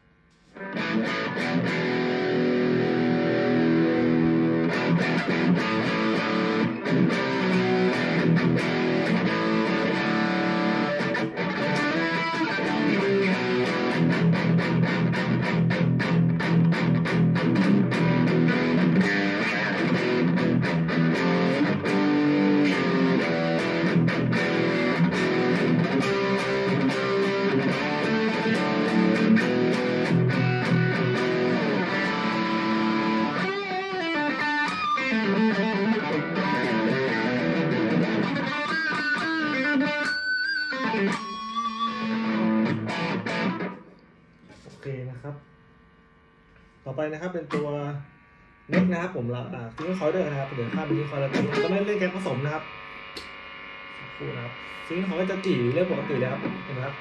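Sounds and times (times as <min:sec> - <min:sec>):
electric guitar through amplifier: 0:00.0 - 0:57.0.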